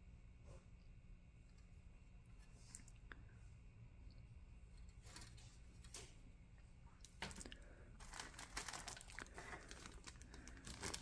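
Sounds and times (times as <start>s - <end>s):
plastic bag crinkling: 7.3s - 11.0s.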